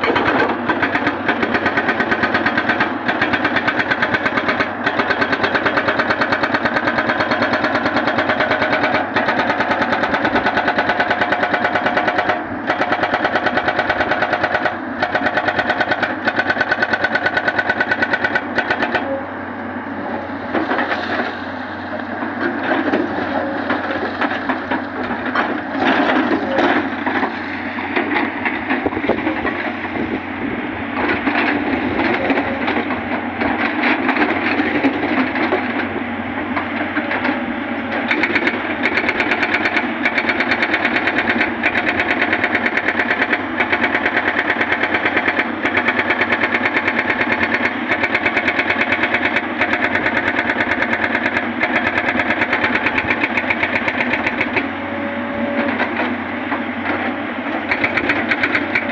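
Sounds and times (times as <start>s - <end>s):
hydraulic rock breaker hammering: 0.0s - 19.2s, 36.6s - 58.9s
excavator engine hum: 0.0s - 58.9s.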